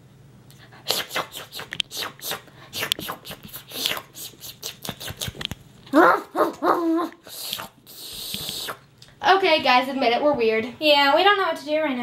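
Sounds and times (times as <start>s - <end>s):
dog sniffing: 0.7s - 5.5s, 6.4s - 8.8s
dog barking: 5.9s - 7.1s
breathy hiss: 7.2s - 8.8s.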